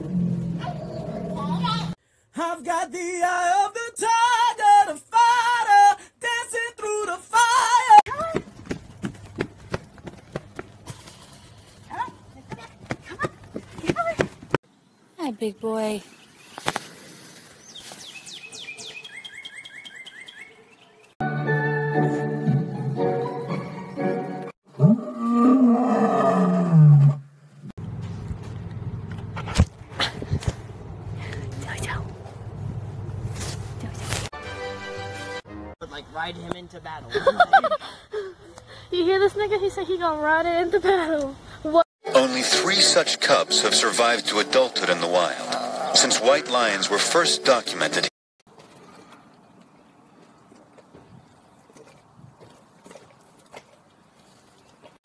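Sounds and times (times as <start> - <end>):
lion roaring: 0.0 - 1.9, 24.7 - 27.3
man singing unaccompanied: 2.3 - 8.0
running footsteps on ground: 8.1 - 14.6.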